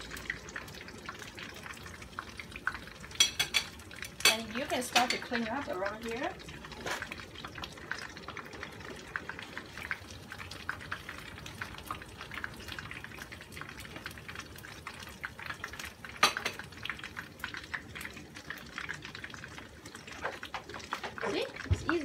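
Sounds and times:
oil crackling in a frying pan: 0.0s - 22.0s.

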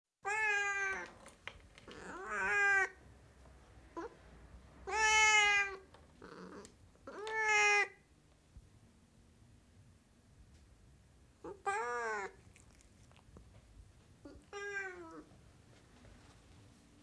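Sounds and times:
cat meowing: 0.2s - 1.1s, 1.9s - 3.0s, 4.8s - 8.1s, 11.4s - 13.1s, 14.2s - 15.3s
cat chirp: 11.4s - 13.1s.

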